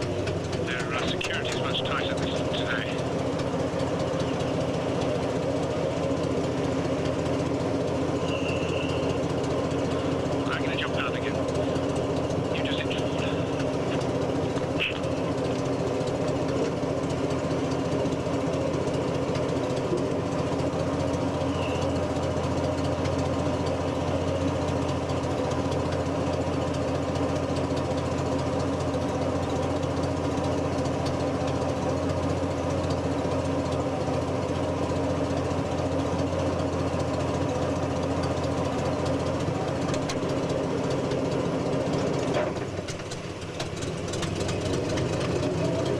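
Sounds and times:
engine running steadily: 0.0 - 45.9.

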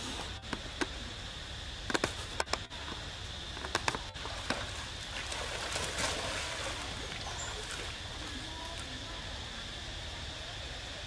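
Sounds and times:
monkeys splashing in water: 3.8 - 8.9.

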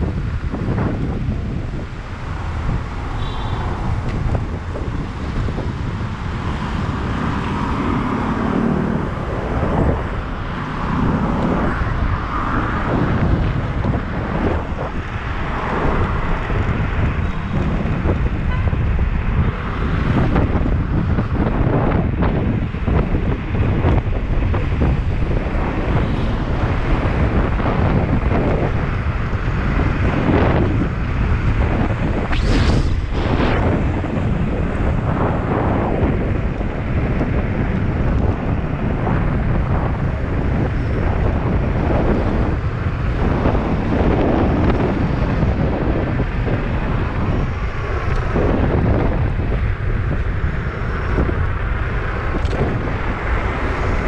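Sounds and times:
wind buffeting microphone: 0.0 - 54.0
brief harsh hiss: 32.3 - 33.6.

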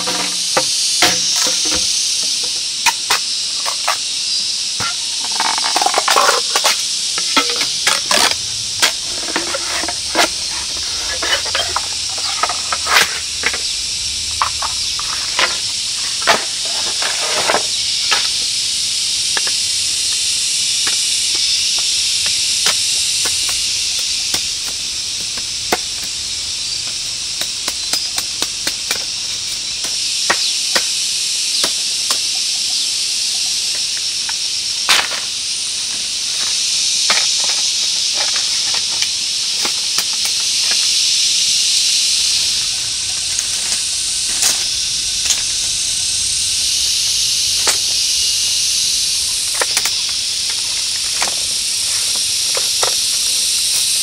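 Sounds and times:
machete splitting bamboo: 0.0 - 1.9, 34.9 - 35.2
high insect drone: 0.0 - 54.0.

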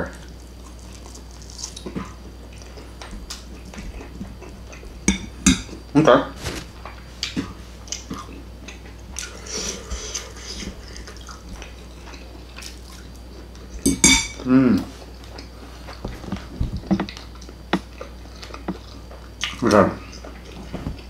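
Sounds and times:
fork clinking on ceramic plates: 5.1 - 5.8, 13.8 - 14.5.

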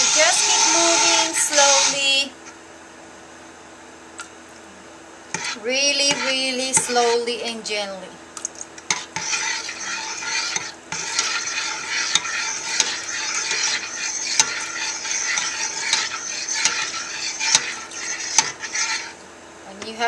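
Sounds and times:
stick blender stirring: 0.0 - 2.2, 5.3 - 7.5, 8.8 - 19.2.

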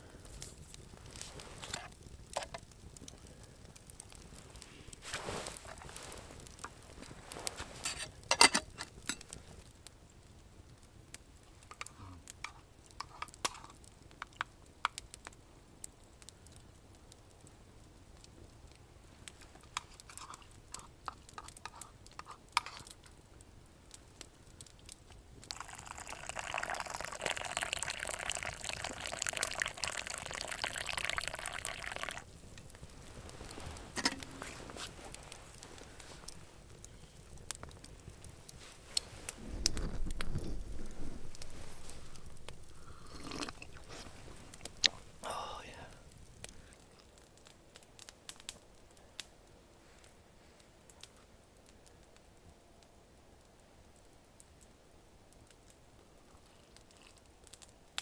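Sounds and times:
liquid pouring into cup: 25.5 - 32.2, 41.3 - 44.8.

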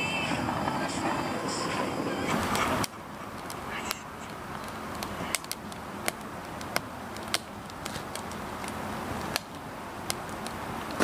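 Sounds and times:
firewood crackling: 0.0 - 11.0
sharp pops of fire: 4.9 - 11.0.

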